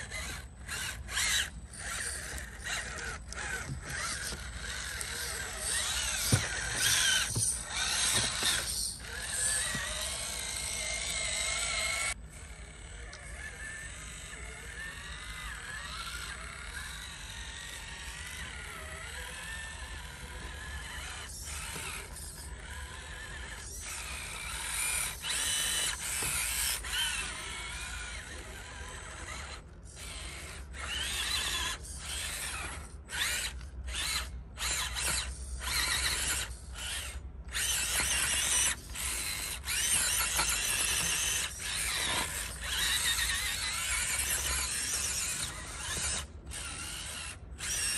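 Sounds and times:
rc motor whining: 0.0 - 47.9.

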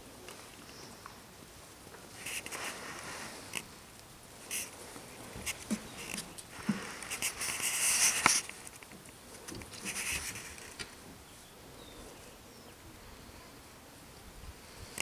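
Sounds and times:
puppies scratching and scrabbling: 4.5 - 11.2.

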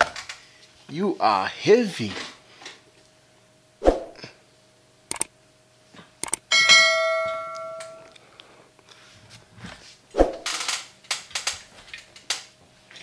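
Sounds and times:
metal clang ringing: 6.5 - 8.1.

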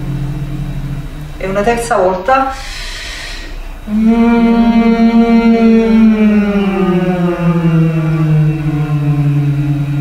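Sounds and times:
women humming sliding down: 2.5 - 10.0.

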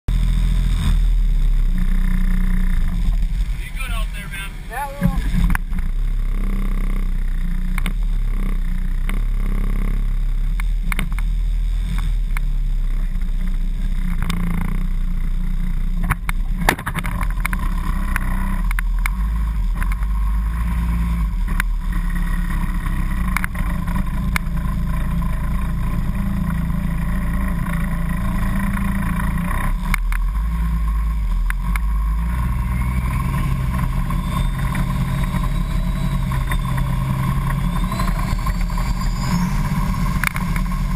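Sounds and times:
bus engine running: 0.1 - 9.5, 19.1 - 40.9.

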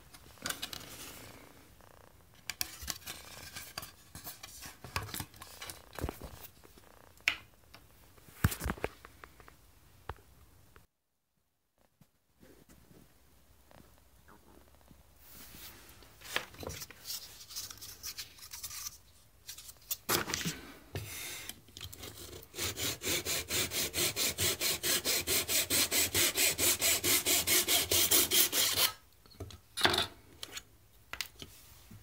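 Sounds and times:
handsaw cutting wood: 22.1 - 29.0.

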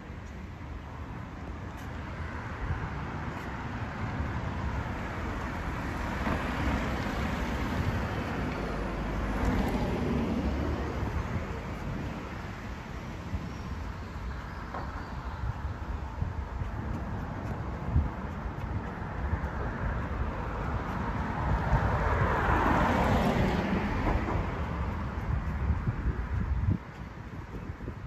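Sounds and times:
vehicle passing: 16.5 - 26.7.

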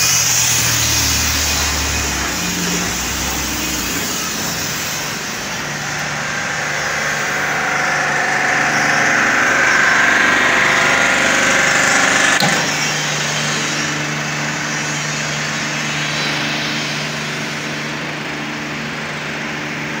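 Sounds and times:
hiss: 0.0 - 5.6
pressure washer engine running: 0.0 - 20.0.

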